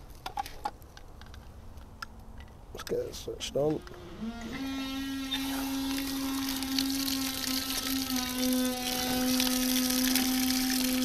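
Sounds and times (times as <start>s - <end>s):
humming whine: 3.8s - 11.0s
water rushing from tap: 5.2s - 11.0s.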